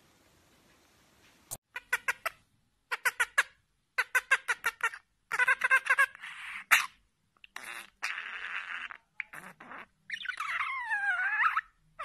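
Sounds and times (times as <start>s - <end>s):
budgerigar chirping: 1.8s - 7.0s, 7.6s - 11.8s.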